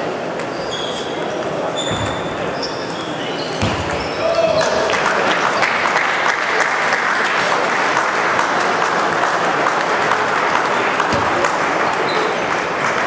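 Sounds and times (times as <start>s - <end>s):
crowd applauding: 4.2s - 13.0s.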